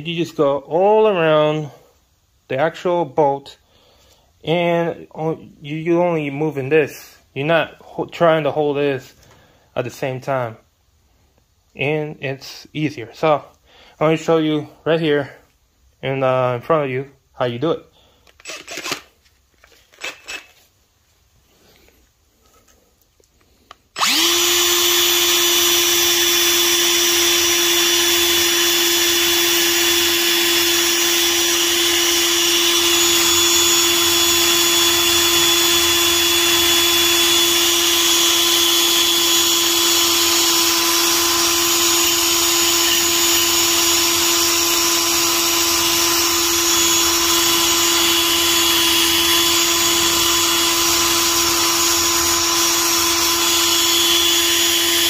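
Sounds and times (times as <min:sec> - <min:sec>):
cordless drill with wire brush whining: 0:18.3 - 0:19.2, 0:19.8 - 0:20.6, 0:23.5 - 0:55.0.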